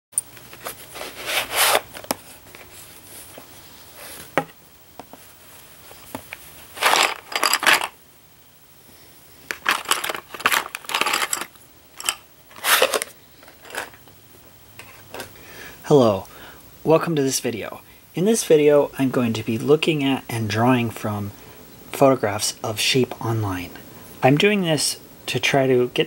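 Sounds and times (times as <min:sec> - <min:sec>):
cloth rustling: 0:00.4 - 0:04.4, 0:09.5 - 0:13.9
tin lid and pencils rattling: 0:06.8 - 0:08.0, 0:09.5 - 0:14.0.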